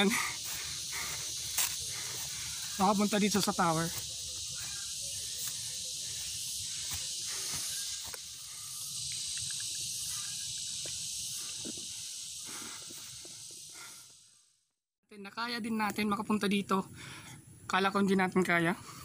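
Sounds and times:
high-pitched insect chorus: 0.0s - 14.6s.

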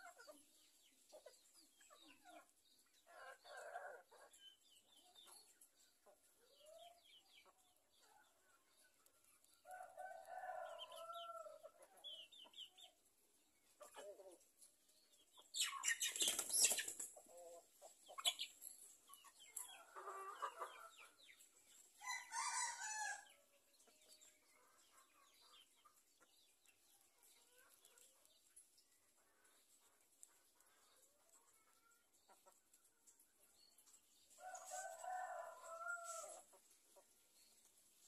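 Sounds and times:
chickens calling and clucking: 0.0s - 38.0s.

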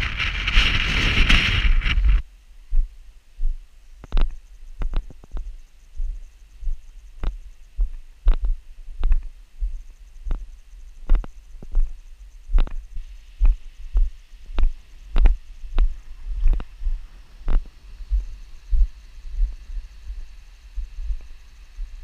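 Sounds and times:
footsteps on gravel: 13.5s - 17.7s.

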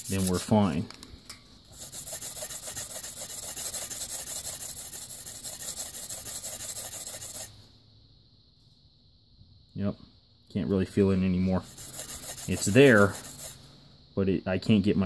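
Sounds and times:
abrasive pad scrubbing metal: 1.8s - 7.5s, 11.6s - 13.6s.

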